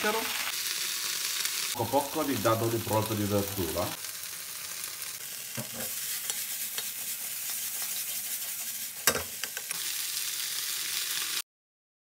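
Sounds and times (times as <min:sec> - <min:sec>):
green beans sizzling in a wok: 0:00.0 - 0:11.4
wooden spatula scraping a pan: 0:05.6 - 0:09.7.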